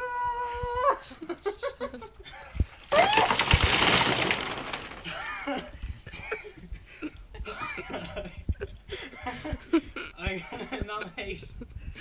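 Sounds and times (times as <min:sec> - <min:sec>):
water splashing down: 0:02.8 - 0:05.2.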